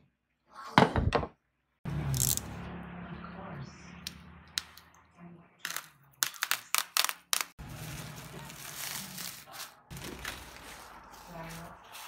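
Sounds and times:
bubble wrap crackling: 5.7 - 12.0
bubble wrap rustling: 5.7 - 12.0.

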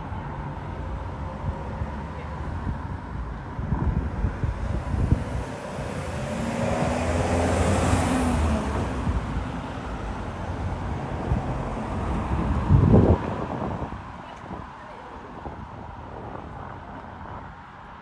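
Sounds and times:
vehicle driving past: 4.0 - 13.2.

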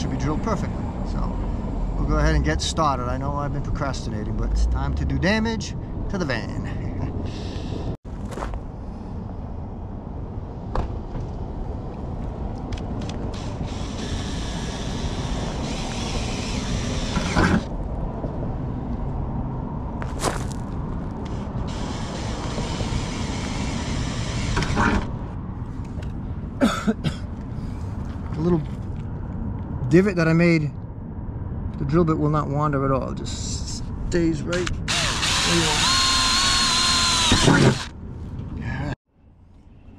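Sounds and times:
cordless drill whirring into metal: 13.4 - 17.7, 21.7 - 25.1, 34.9 - 37.9.

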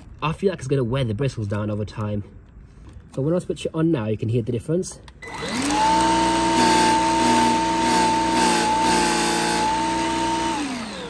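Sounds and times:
vacuum motor whine: 5.2 - 11.0.

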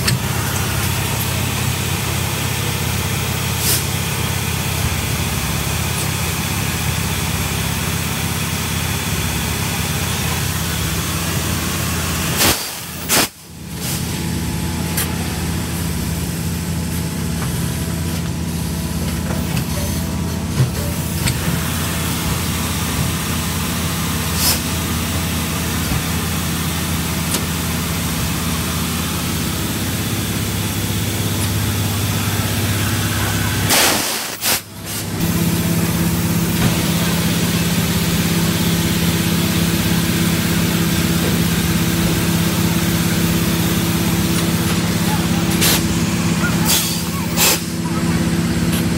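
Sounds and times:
machinery humming: 0.0 - 48.9
loud burst of hiss: 12.2 - 14.1, 32.1 - 35.4.

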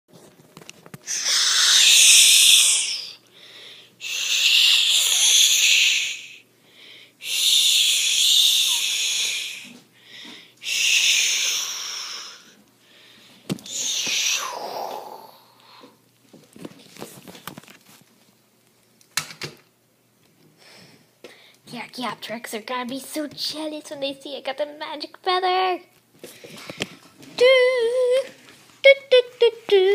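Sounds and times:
person making hissing screeches: 1.0 - 3.2, 4.0 - 6.4, 7.2 - 9.8, 10.6 - 12.6, 13.6 - 16.0.

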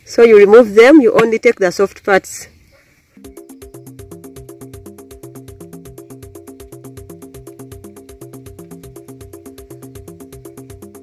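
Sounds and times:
electronic music with fast beat: 3.2 - 11.0.

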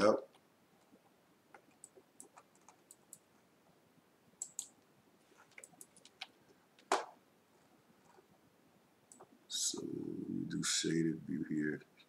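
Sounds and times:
mouse and keyboard clicks: 1.5 - 3.2, 4.4 - 4.8, 5.5 - 7.0.

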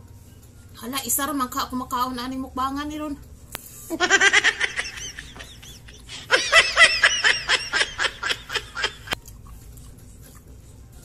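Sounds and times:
person laughing: 3.9 - 9.2.

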